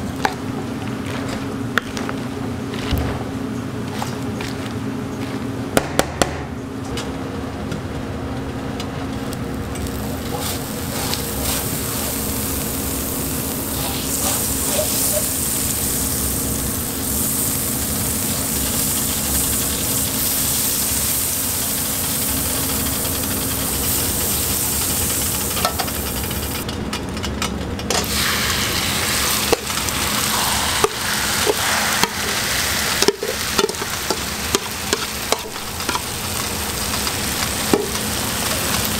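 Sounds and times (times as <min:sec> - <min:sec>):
butter sizzling on griddle: 0:09.2 - 0:26.6, 0:28.0 - 0:38.9.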